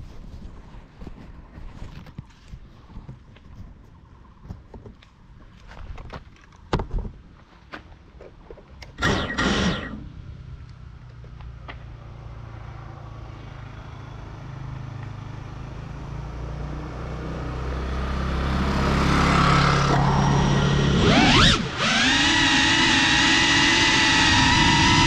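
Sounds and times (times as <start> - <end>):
motor scooter engine approaching: 9.7 - 25.0.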